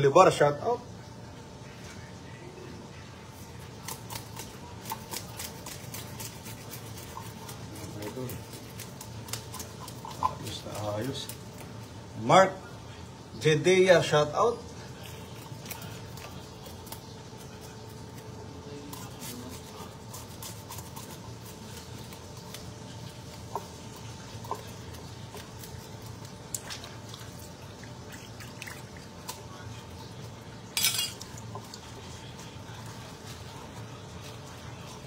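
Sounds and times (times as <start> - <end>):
knife and bowls clinking: 30.7 - 31.8.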